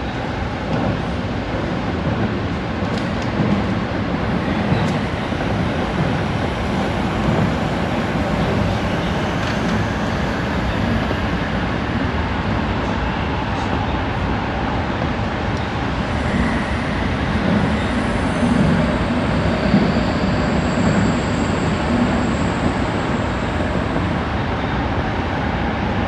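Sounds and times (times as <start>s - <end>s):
train rumbling through tunnel: 0.0s - 26.0s.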